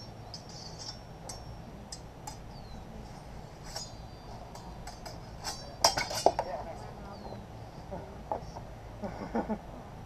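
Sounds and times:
outdoor background hum: 0.0s - 10.0s
swords clinking: 4.8s - 6.4s.

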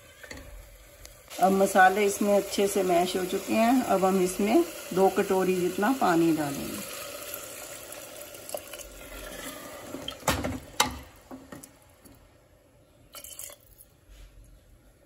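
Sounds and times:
water pouring into liquid: 4.6s - 10.3s, 13.1s - 13.7s.

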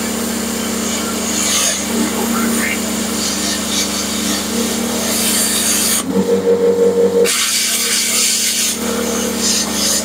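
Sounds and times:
plasma cutter arc hissing: 0.0s - 6.0s, 7.2s - 10.0s
low wavering hum: 0.0s - 7.9s.

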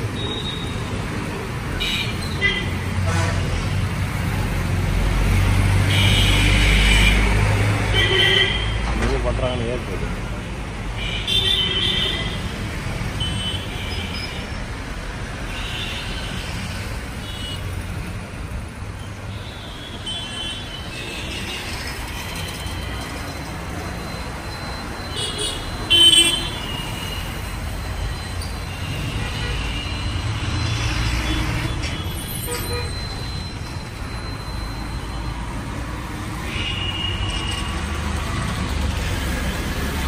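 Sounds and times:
traffic engines rumbling: 0.0s - 40.0s
vehicle horns tooting: 1.7s - 3.5s, 7.9s - 8.8s, 25.1s - 27.5s, 28.7s - 30.3s, 31.7s - 33.2s.

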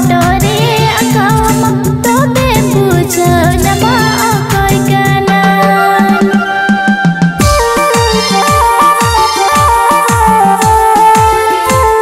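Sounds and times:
instrumental music with drum beat: 0.0s - 12.0s
deep electronic drum hits: 1.3s - 5.3s, 7.3s - 11.4s.

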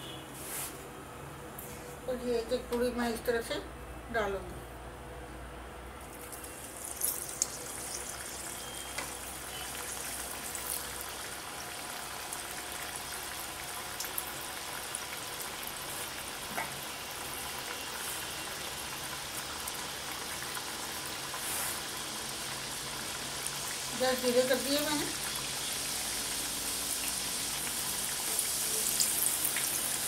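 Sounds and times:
deep-frying in hot oil sizzling: 5.8s - 30.0s
oil popping: 6.0s - 9.2s.

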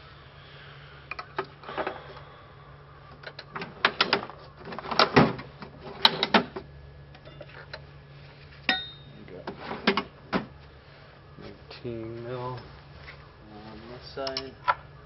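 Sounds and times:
metal hand tools clanking: 8.7s - 9.2s
ringing metal clink: 8.7s - 9.2s.

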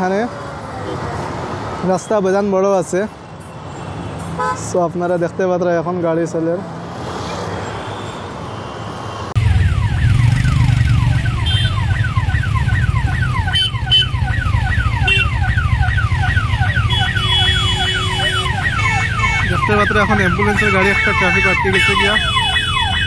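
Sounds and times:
road traffic noise: 0.0s - 23.0s
ambulance siren wailing: 9.3s - 23.0s
car horn toots: 11.4s - 11.9s, 16.8s - 19.5s, 20.4s - 23.0s.

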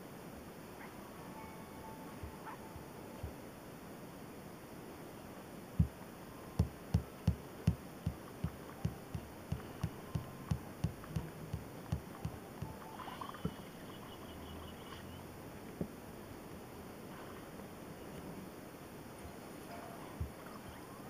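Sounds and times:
faint electronic beeping: 0.7s - 15.6s, 19.1s - 21.0s
fingertip taps on touchscreen: 6.6s - 12.8s.

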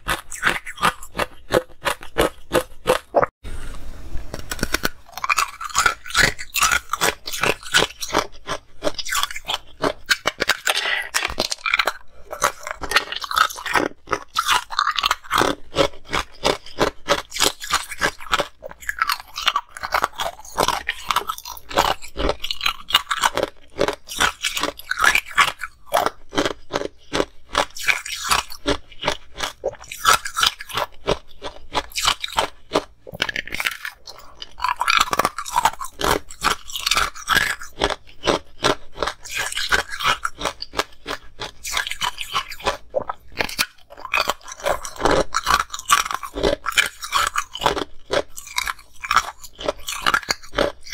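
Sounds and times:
ice crunching between teeth: 0.0s - 3.3s, 4.3s - 50.9s.

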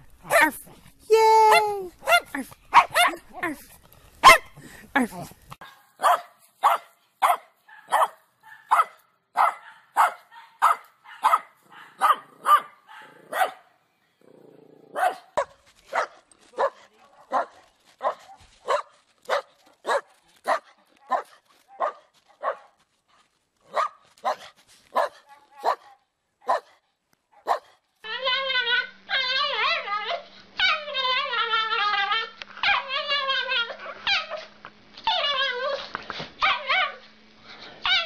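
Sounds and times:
dog barking: 0.3s - 0.6s, 2.0s - 3.3s, 4.2s - 4.6s, 5.6s - 13.8s, 14.9s - 22.8s, 23.7s - 27.8s.

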